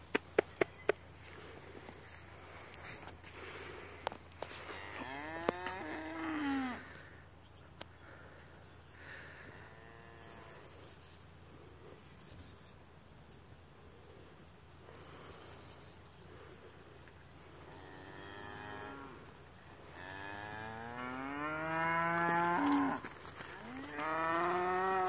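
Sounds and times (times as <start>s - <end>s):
high insect buzz: 0.5s - 13.1s, 14.8s - 16.7s, 17.3s - 25.0s
cattle mooing: 20.0s - 25.0s.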